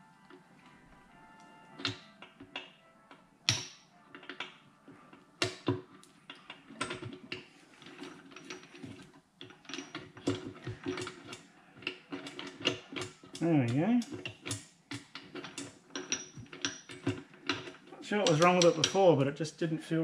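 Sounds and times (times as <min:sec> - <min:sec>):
gears clicking and clinking: 0:05.4 - 0:19.2.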